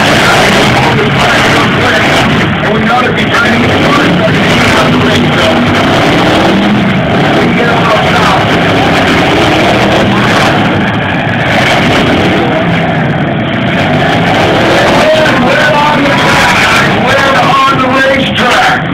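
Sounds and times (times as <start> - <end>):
car engines revving: 0.0 - 18.9
crowd voices: 0.0 - 18.9.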